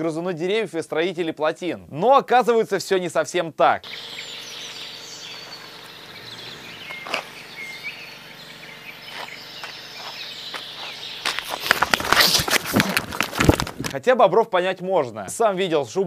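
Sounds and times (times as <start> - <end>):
steady background hiss: 1.7 - 12.7
bird chirps: 3.8 - 12.5.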